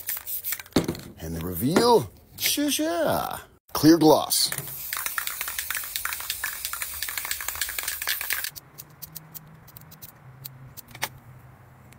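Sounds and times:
aerosol spray can hissing: 4.5s - 8.5s.

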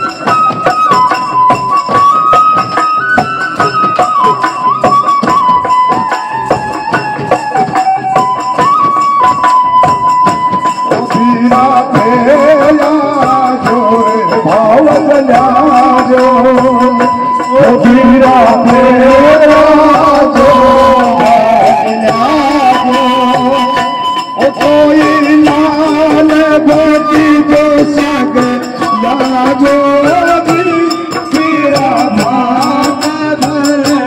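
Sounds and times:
frame drums beat: 0.0s - 34.0s
man singing through loudspeaker: 10.8s - 34.0s.

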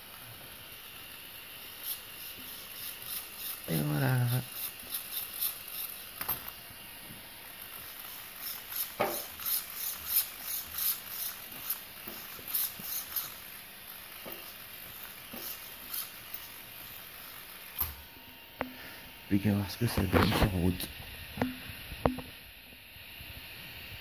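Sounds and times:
steering servo whirring: 7.4s - 18.7s.

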